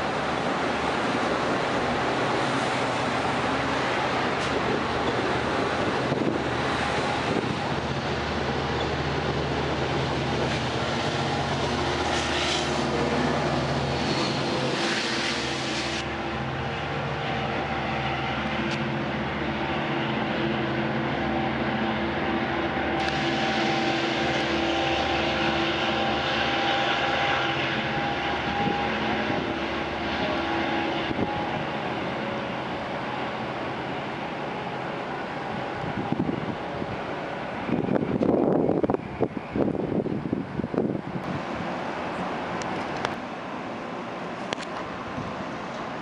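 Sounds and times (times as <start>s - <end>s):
diesel locomotive droning: 0.0s - 46.0s
train coaches rumbling: 0.0s - 46.0s.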